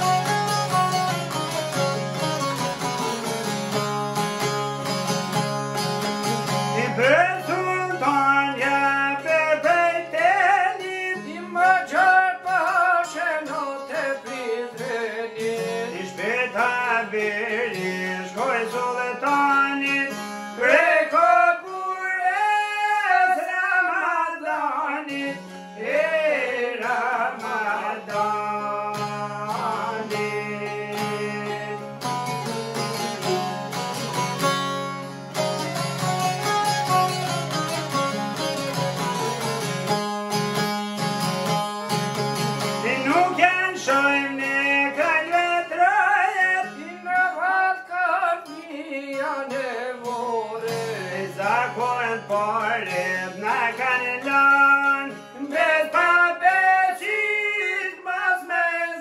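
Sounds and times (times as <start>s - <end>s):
plucked lutes: 0.0s - 58.5s
man singing folk song: 0.0s - 59.0s.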